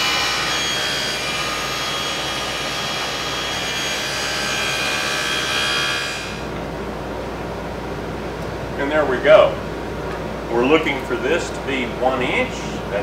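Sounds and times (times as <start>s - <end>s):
table saw whine: 0.0s - 6.6s.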